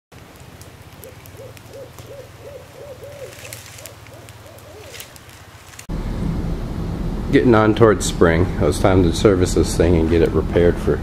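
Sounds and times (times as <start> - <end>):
bonfire crackling and popping: 0.1 - 5.9, 9.4 - 11.0
short hooting calls: 1.0 - 5.2.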